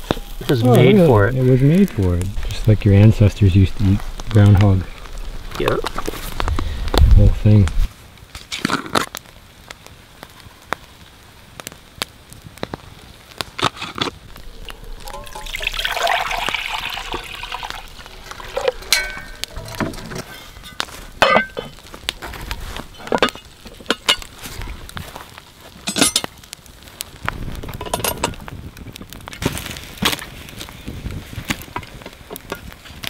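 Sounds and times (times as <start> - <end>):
liquid pouring and splashing: 14.4 - 21.6
cast-iron lid clanking: 14.6 - 21.8.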